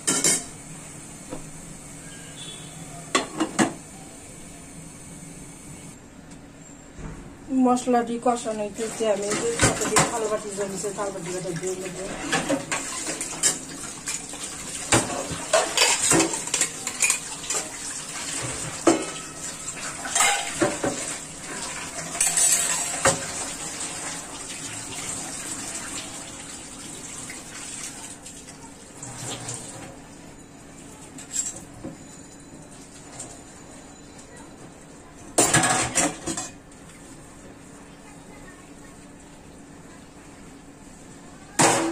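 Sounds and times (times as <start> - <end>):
running tap water: 8.8 - 29.9
steel dishes clattering: 14.9 - 17.7, 20.0 - 21.0, 22.1 - 23.2.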